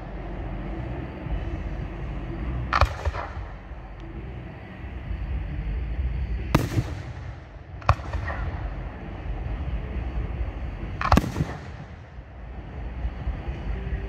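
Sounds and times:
firework crackling: 0:00.0 - 0:14.0
firework shells bursting: 0:02.7 - 0:03.6, 0:06.5 - 0:10.1, 0:10.8 - 0:12.2.

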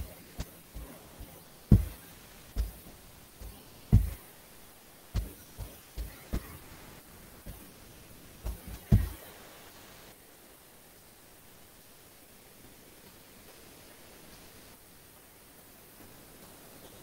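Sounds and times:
pen knocking on writing surface: 0:03.4 - 0:04.2, 0:08.5 - 0:09.2.

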